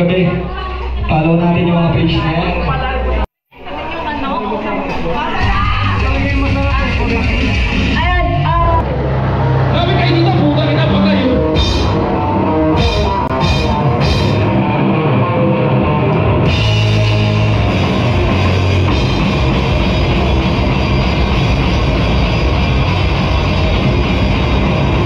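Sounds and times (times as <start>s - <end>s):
live rock band playing: 9.0s - 25.0s.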